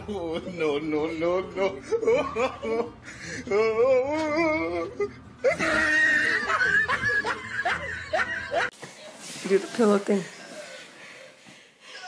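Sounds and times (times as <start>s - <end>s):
person laughing: 4.2s - 8.7s.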